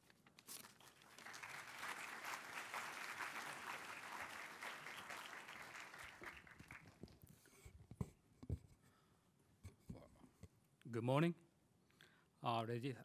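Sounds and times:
audience applauding: 0.8 - 7.2.

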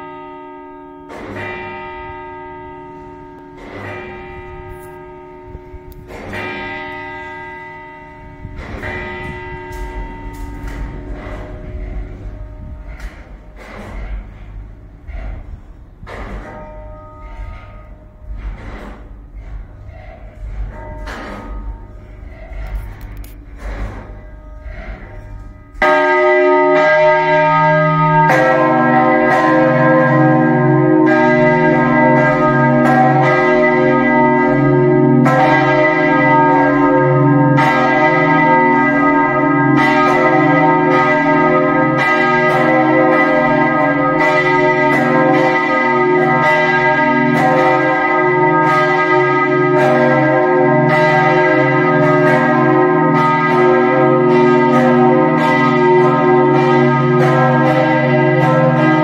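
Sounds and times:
church bells ringing: 0.0 - 59.0
lower-toned bell ringing: 0.0 - 59.0.

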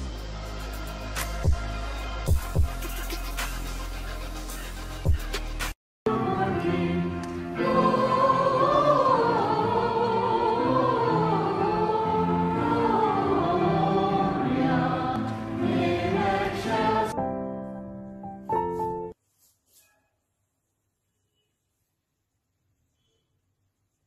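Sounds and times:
steady musical accompaniment: 0.0 - 19.2
choir singing: 6.1 - 17.3.

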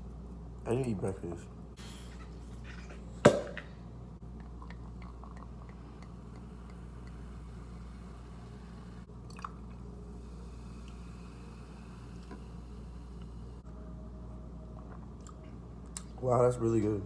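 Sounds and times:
sparkling wine pouring and fizzing: 4.2 - 13.5
juice pouring into glass: 4.3 - 12.7.

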